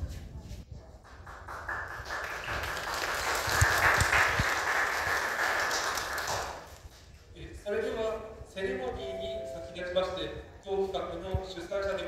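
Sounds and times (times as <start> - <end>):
audience clapping: 1.0 - 7.1.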